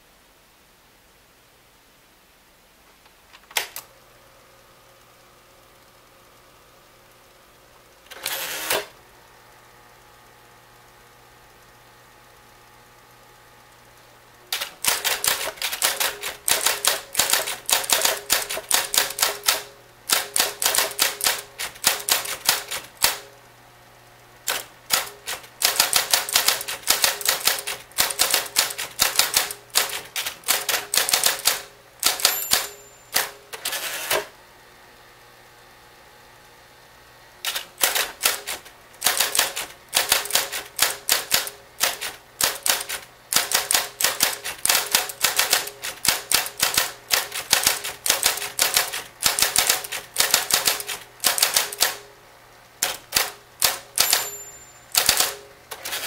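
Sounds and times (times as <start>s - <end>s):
typewriter key strikes: 14.5s - 23.3s, 24.5s - 33.8s, 37.5s - 52.1s, 52.8s - 56.0s.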